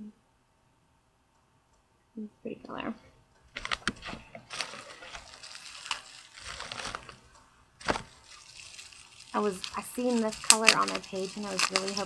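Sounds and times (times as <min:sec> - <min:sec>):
packaging rustling and crinkling: 0:03.6 - 0:12.0.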